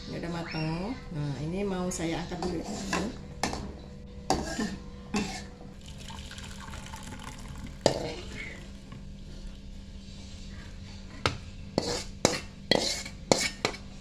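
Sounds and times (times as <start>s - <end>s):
broth pouring into bowl: 5.8s - 9.3s.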